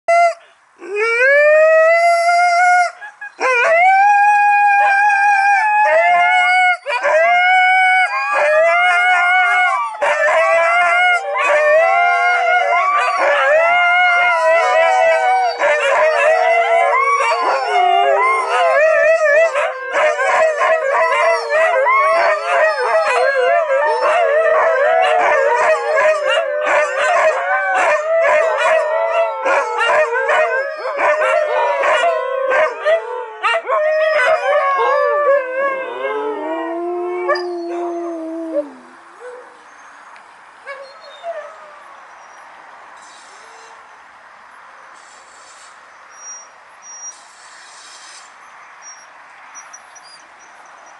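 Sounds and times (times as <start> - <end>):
huskies howling: 3.4 - 39.0.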